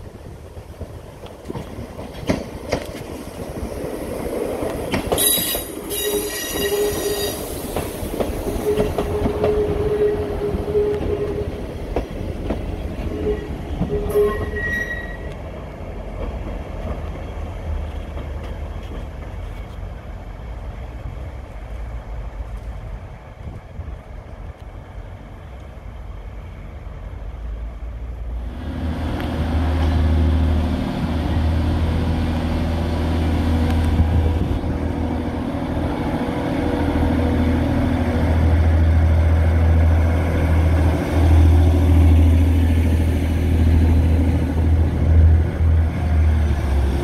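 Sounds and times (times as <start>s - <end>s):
train wheels clicking over rail joints: 0.6s - 15.4s, 16.0s - 19.9s
train wheels squealing: 5.1s - 7.8s, 13.1s - 15.4s.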